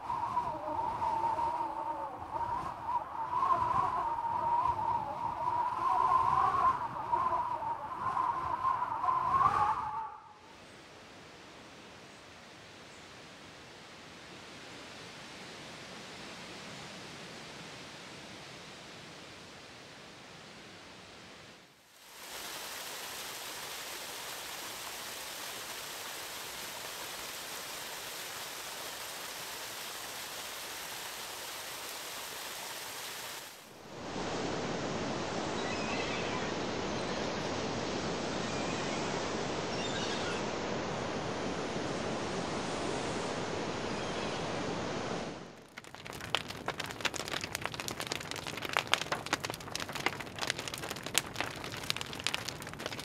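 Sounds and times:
falling water splashing: 22.0s - 33.7s, 45.6s - 53.0s.

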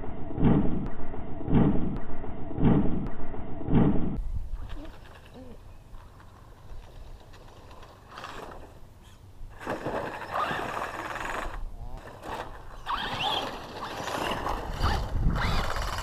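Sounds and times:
tyres on dirt: 4.6s - 16.0s.

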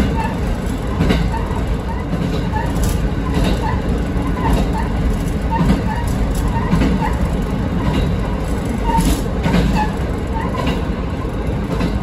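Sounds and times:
train wheels clacking over rail joints: 0.0s - 12.0s.

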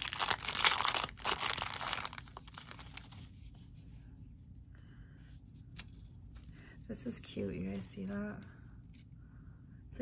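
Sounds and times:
plastic wrapping crinkling and tearing: 0.0s - 3.2s.

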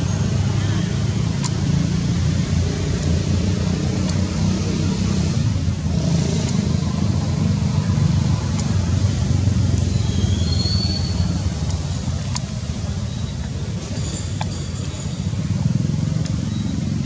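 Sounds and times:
faint clicks: 1.3s - 1.7s, 2.8s - 4.3s, 6.4s - 7.1s, 8.4s - 8.9s, 11.1s - 13.6s.

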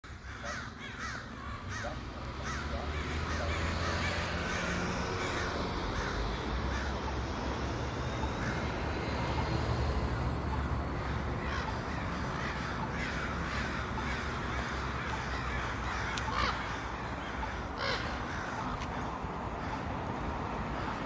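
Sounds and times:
crows cawing: 0.0s - 21.0s.

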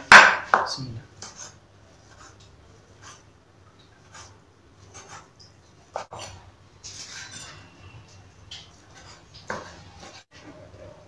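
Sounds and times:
knife scraping strokes: 4.0s - 7.9s.

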